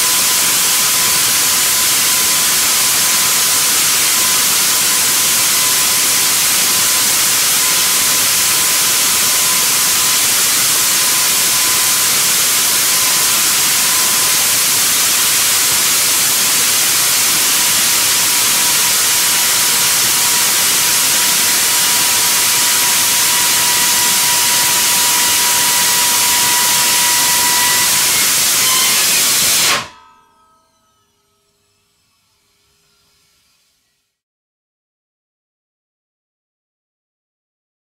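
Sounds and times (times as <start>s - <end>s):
rocket engine hissing roar: 7.4s - 30.0s
faint whistle: 22.8s - 30.0s.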